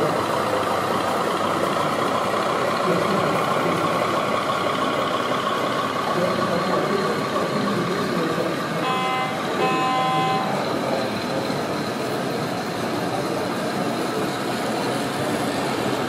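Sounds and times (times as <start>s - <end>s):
model train running on track: 0.0s - 16.0s
train horn toots: 8.8s - 10.6s.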